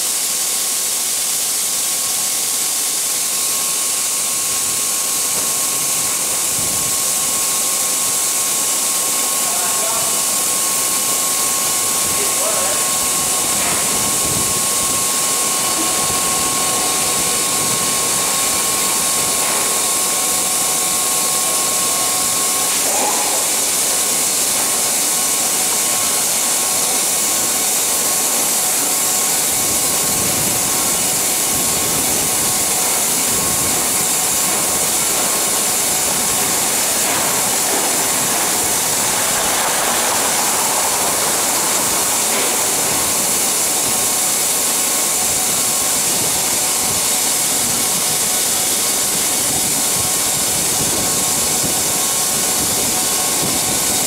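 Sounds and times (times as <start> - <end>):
faint high whine: 29.6 - 47.0
grain pouring: 32.2 - 46.0.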